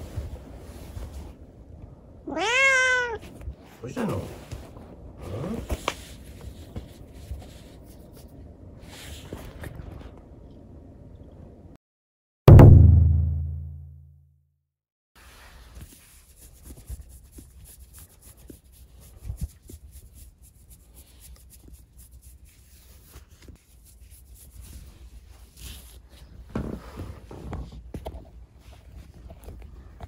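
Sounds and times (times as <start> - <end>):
fingers rubbing through fur: 3.2 - 9.7, 15.4 - 26.3
deep musical hit: 12.5 - 14.0.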